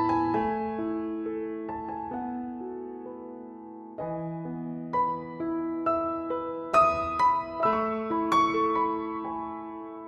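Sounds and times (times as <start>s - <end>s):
piano music: 0.0s - 10.0s.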